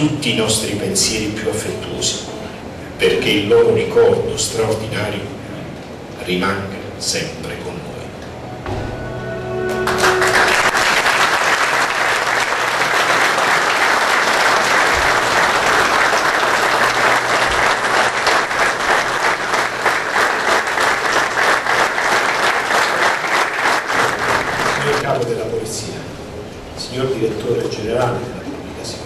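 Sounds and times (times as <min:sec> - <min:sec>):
audience applauding: 0:09.7 - 0:25.0.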